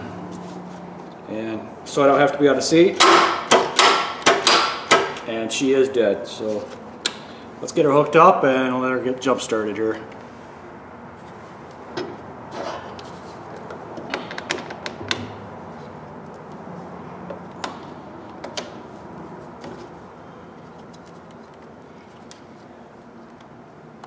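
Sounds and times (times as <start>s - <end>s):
cable clamps clacking and snapping: 3.0s - 5.3s.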